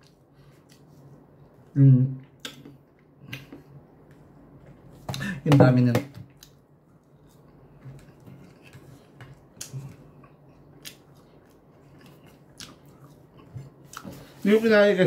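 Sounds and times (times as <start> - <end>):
person chewing food: 6.4 - 14.4.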